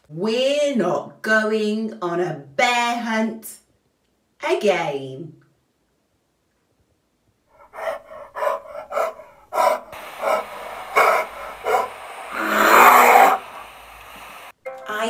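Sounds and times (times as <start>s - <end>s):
growl-like breath: 7.6s - 13.7s
person huffing breaths: 7.6s - 14.2s.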